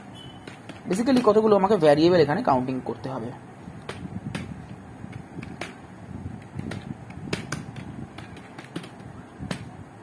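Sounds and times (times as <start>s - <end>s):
faint low background noise: 0.0s - 10.0s.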